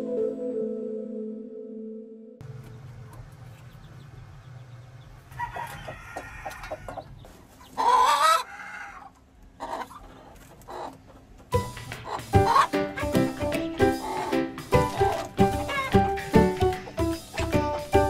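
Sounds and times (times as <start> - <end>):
chickens clucking: 2.6 - 18.0
chicken wavering call: 12.0 - 13.2, 13.8 - 16.2.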